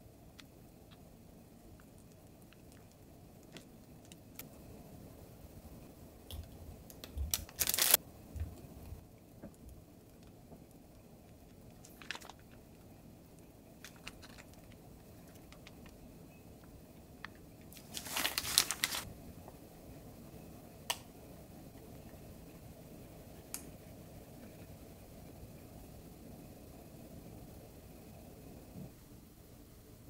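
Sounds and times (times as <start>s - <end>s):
piping bag crinkling and squishing: 6.4s - 8.0s, 11.7s - 12.9s, 13.8s - 16.0s, 17.2s - 19.1s.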